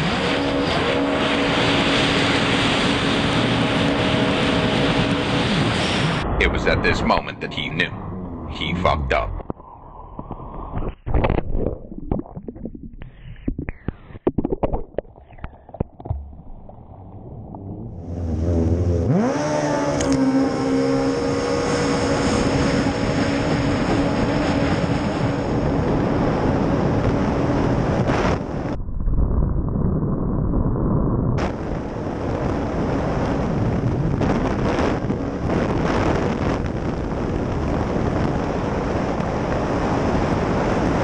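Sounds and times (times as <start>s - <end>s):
jet ski engine revving: 0.0s - 6.2s, 17.6s - 25.8s
water splashing: 10.9s - 18.5s.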